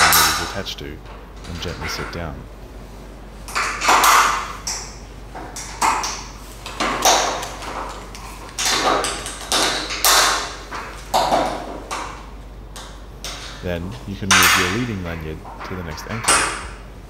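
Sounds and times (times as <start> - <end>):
metal carabiners clinking: 3.5 - 16.9.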